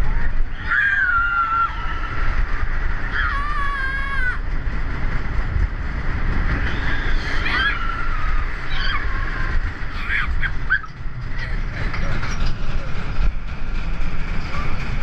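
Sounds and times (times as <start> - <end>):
roller coaster rumbling on track: 0.0 - 15.0
riders screaming: 0.2 - 4.5, 6.6 - 11.0.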